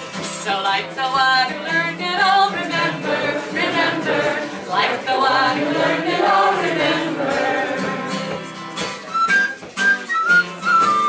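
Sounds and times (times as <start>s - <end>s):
voices singing unaccompanied: 0.6s - 8.6s
whistle playing high notes: 9.0s - 11.0s.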